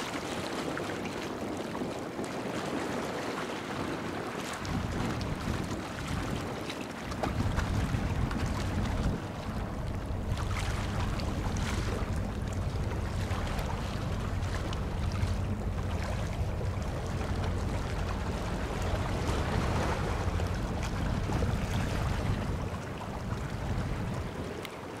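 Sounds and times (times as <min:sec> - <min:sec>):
water lapping: 0:00.0 - 0:25.0
wind buffeting microphone: 0:00.0 - 0:25.0
low engine hum: 0:04.6 - 0:06.5, 0:07.1 - 0:24.8.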